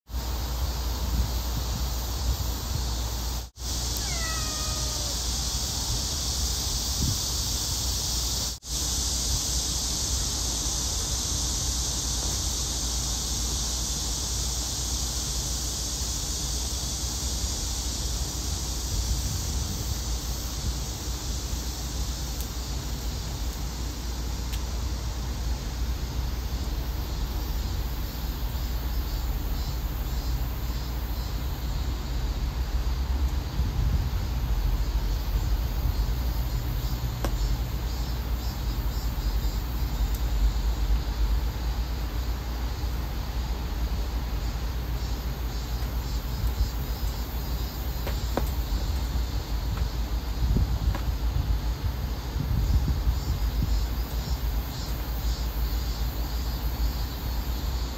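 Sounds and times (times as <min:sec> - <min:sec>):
steady hiss: 0:00.1 - 0:57.9
cat meowing: 0:03.9 - 0:05.3.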